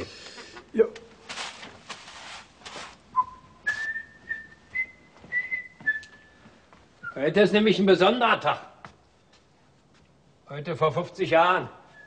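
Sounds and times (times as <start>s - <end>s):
rustling: 0.4s - 4.4s
person whistling: 3.1s - 6.4s.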